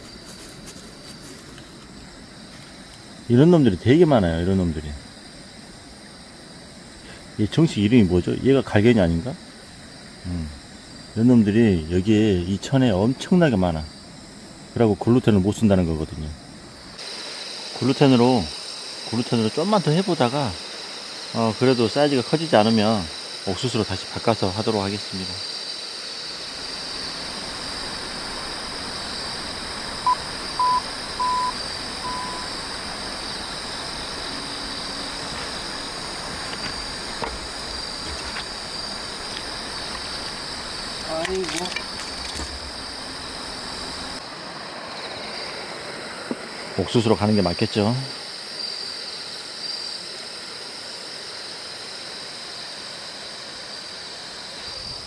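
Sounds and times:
crickets chirring: 0:00.0 - 0:55.0
low background hiss: 0:00.0 - 0:55.0
electronic beeps: 0:30.1 - 0:32.5.

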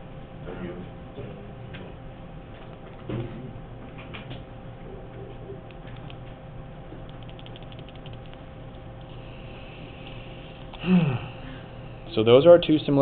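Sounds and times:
low room hum: 0:00.0 - 0:13.0
faint clicks and ticks: 0:05.6 - 0:06.4, 0:07.0 - 0:09.2.

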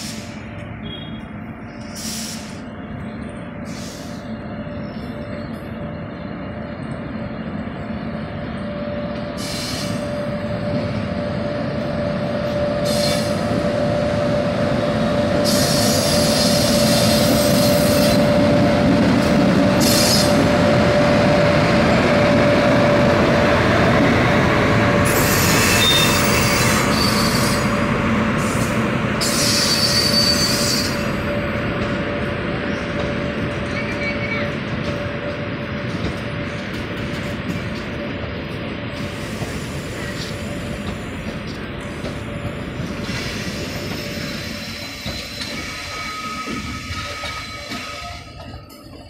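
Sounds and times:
steady locomotive hum: 0:00.0 - 0:49.0
train rolling past: 0:00.0 - 0:49.0
wheel and brake squeals: 0:25.1 - 0:27.7, 0:29.2 - 0:31.3, 0:43.0 - 0:48.8.

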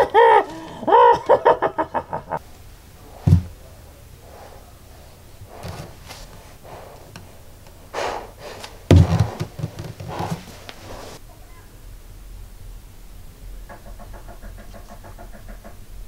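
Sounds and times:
loud thump: 0:03.2 - 0:03.6, 0:08.9 - 0:10.4
breaths through gas mask: 0:04.2 - 0:11.2
small knocks: 0:08.9 - 0:10.8.

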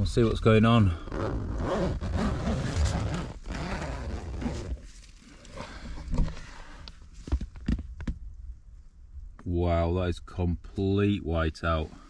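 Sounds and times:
nylon fabric rustling: 0:01.1 - 0:05.4
tent zip pulled open: 0:01.1 - 0:05.6.

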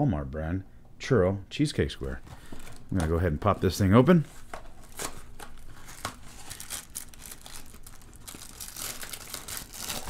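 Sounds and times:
cardboard box crinkling and tearing: 0:04.8 - 0:10.0.

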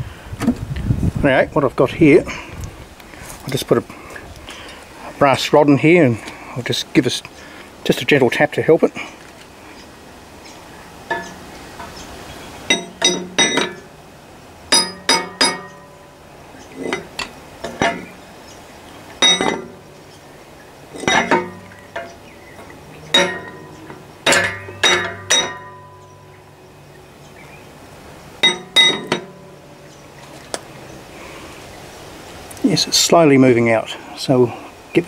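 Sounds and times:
hammer tapping on metal rod: 0:11.1 - 0:11.9, 0:12.7 - 0:13.9, 0:14.7 - 0:15.9, 0:23.1 - 0:26.1.

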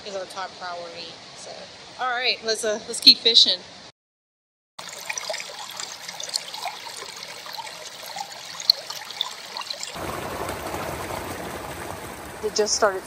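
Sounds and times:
stream trickling over rocks: 0:04.8 - 0:13.0
water plinks: 0:04.8 - 0:13.0.

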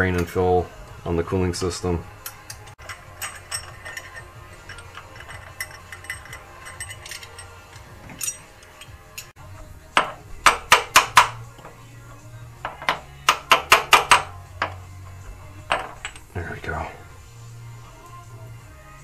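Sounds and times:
background music: 0:00.0 - 0:19.0.

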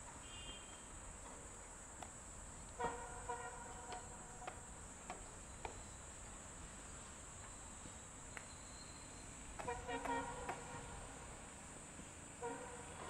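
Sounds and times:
insects chirring: 0:00.2 - 0:11.9
faint clicks: 0:02.0 - 0:02.8.

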